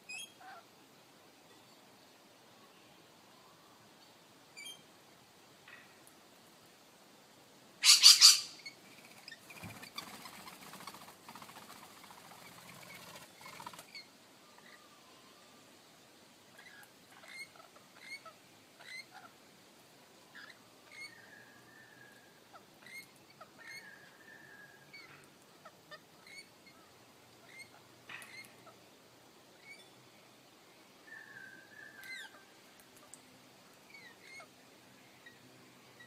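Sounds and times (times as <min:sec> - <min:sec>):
birds chirping and squeaking: 0:04.6 - 0:04.8, 0:07.8 - 0:10.6, 0:16.6 - 0:19.3, 0:20.3 - 0:21.2, 0:22.8 - 0:24.0, 0:25.9 - 0:26.8, 0:27.4 - 0:28.8, 0:29.6 - 0:29.9, 0:33.8 - 0:34.5.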